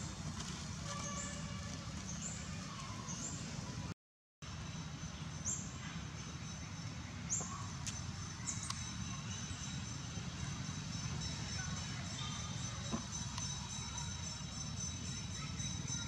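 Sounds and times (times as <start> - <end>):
birds chirping: 0.8 - 3.9, 4.6 - 16.0
thin steady high tones: 4.5 - 16.0.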